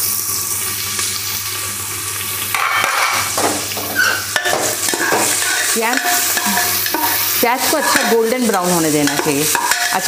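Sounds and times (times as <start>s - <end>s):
onions sizzling in hot oil: 0.0s - 10.0s
spoon stirring in a pan: 2.5s - 10.0s.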